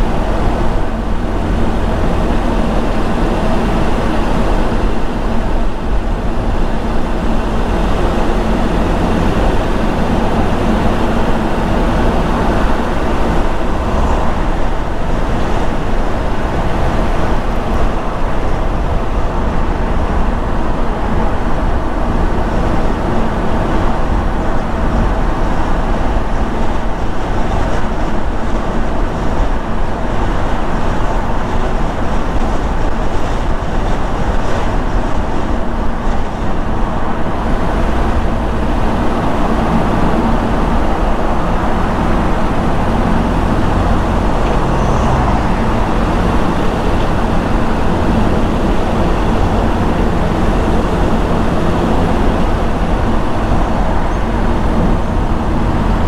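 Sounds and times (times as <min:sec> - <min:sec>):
low engine hum: 0:00.0 - 0:56.0
tyres rumbling on road: 0:00.0 - 0:56.0.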